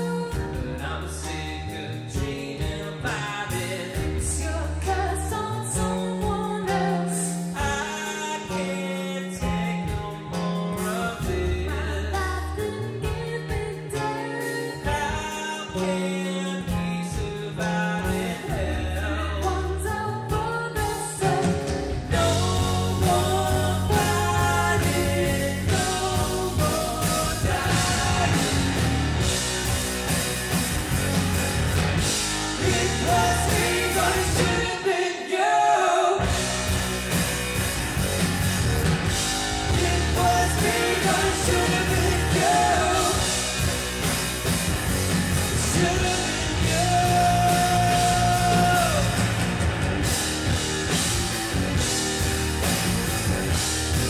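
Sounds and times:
person singing: 0.0s - 29.1s, 32.6s - 36.6s, 39.6s - 43.4s, 45.6s - 49.4s
bass guitar: 0.0s - 35.0s, 36.2s - 54.0s
drum kit: 0.0s - 35.0s, 36.2s - 54.0s
electric guitar: 0.0s - 35.0s, 36.2s - 54.0s.

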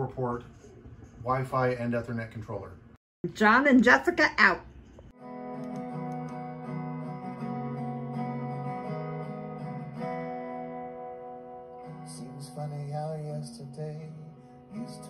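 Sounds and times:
acoustic guitar strumming chords: 5.2s - 15.0s.

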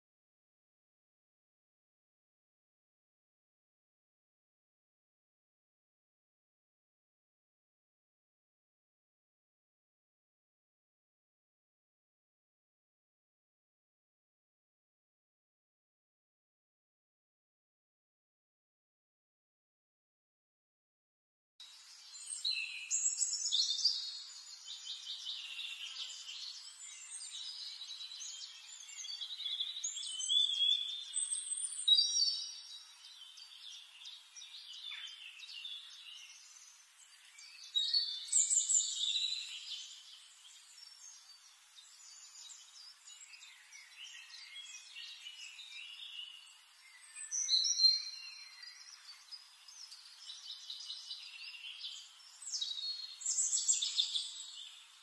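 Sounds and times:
birds chirping and trilling: 21.6s - 55.0s.

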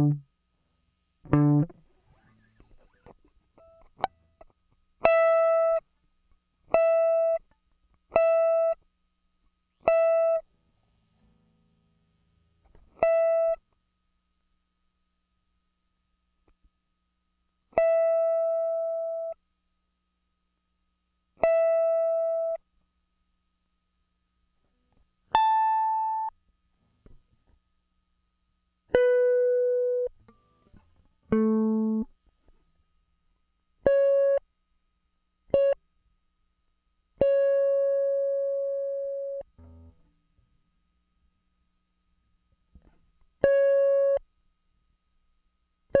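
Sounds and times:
electric guitar single notes: 0.0s - 0.2s, 1.3s - 1.8s, 31.3s - 32.1s.

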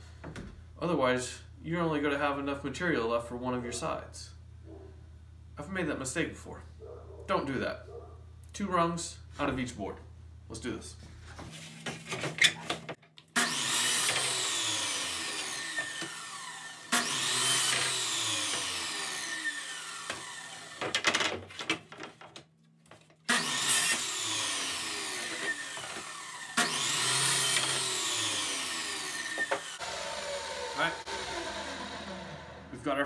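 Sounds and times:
miter saw cutting wood: 13.4s - 21.0s, 23.3s - 33.0s.

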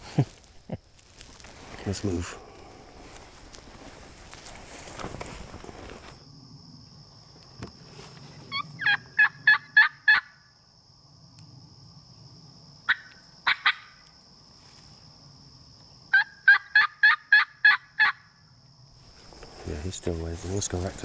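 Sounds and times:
turkey call yelps: 8.5s - 10.4s, 12.9s - 14.0s, 16.1s - 18.3s.

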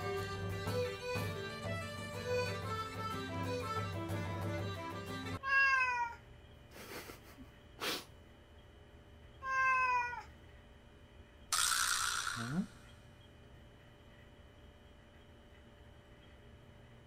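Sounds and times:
cat meowing: 5.4s - 6.2s, 9.4s - 10.3s.

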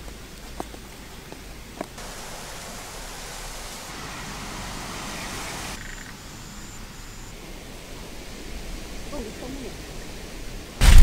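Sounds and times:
steady even hiss: 0.0s - 11.0s.

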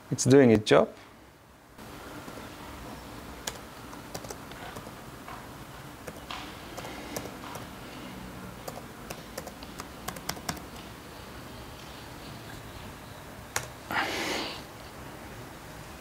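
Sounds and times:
laptop keyboard typing: 3.4s - 5.0s, 6.0s - 7.8s, 8.6s - 11.0s, 13.5s - 13.9s.

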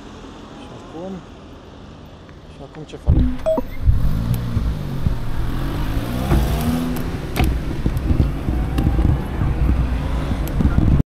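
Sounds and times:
car engine accelerating: 3.1s - 10.8s.

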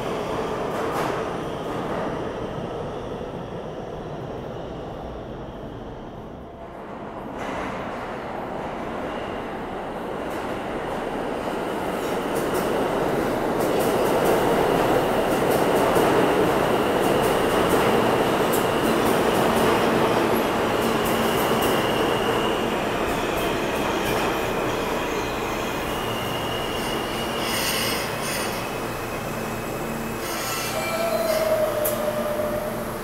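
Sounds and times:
subway train rumbling on rails: 0.0s - 33.0s
high wheel squeal: 24.7s - 33.0s.

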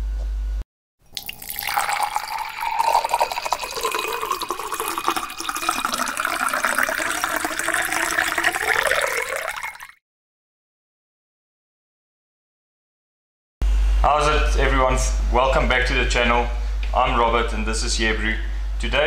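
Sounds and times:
liquid pouring and splashing: 1.1s - 10.0s.

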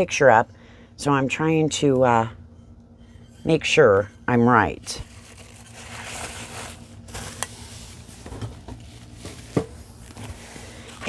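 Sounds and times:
packing material rustling: 5.0s - 8.0s.

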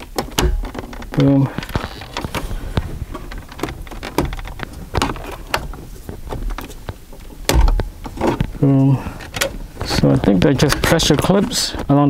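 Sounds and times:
heavy thump: 7.4s - 8.7s.

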